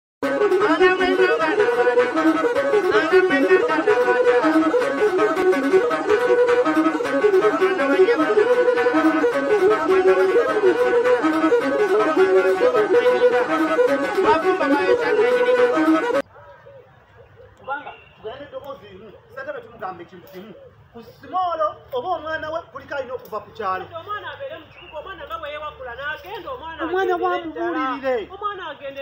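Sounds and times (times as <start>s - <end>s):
wind instrument melody over beat: 0.2s - 16.3s, 25.0s - 28.2s.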